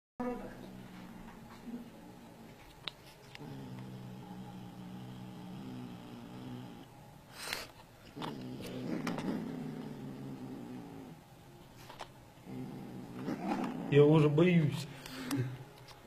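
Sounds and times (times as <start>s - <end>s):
cat growling: 3.3s - 11.2s, 12.4s - 14.1s.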